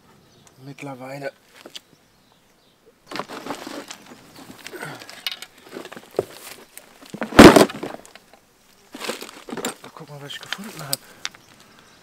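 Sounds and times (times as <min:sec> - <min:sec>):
plastic crate clattering: 0:03.1 - 0:04.6, 0:05.6 - 0:08.1, 0:09.0 - 0:09.8
heavy thump: 0:07.2 - 0:08.0.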